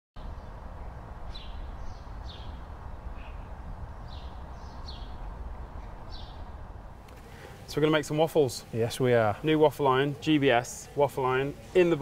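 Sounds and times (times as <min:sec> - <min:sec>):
steady low rumble: 0:00.2 - 0:07.2
small birds chirping: 0:00.2 - 0:12.0.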